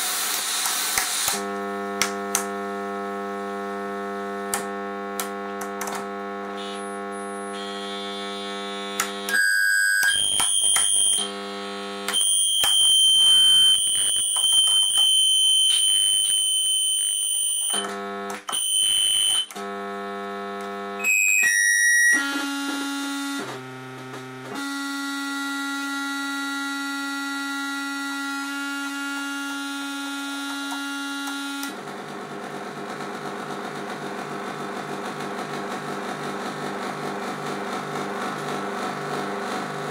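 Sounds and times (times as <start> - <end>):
electronic buzzing drone: 1.2 - 39.9
rapidly pulsing buzz: 1.4 - 9.3
low steady electronic hum: 1.4 - 9.4, 10.2 - 16.2, 17.8 - 21.0.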